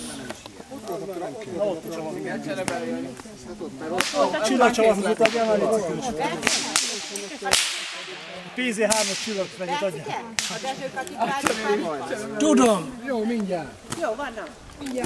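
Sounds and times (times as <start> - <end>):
people chatting: 0.0 - 15.0
sharp cracks or pops: 4.0 - 4.4, 6.4 - 9.5, 10.4 - 11.8.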